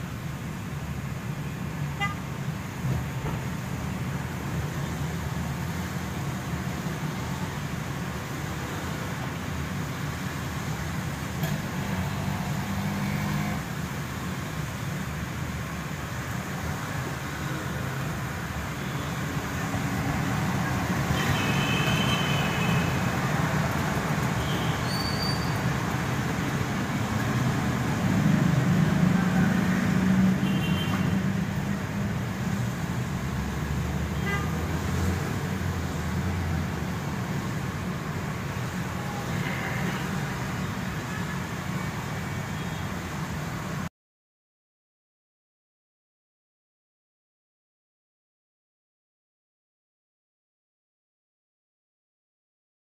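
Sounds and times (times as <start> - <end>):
car driving on wet road: 0.1 - 42.3.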